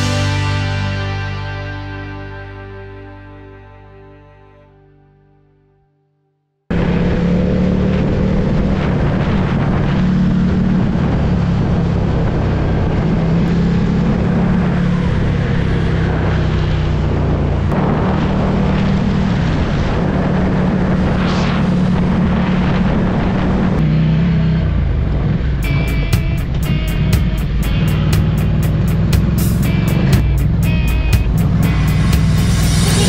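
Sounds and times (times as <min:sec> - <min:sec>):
motorcycle engine cruising: 0:00.0 - 0:01.5, 0:06.7 - 0:33.0
wind rushing over microphone: 0:06.7 - 0:33.0.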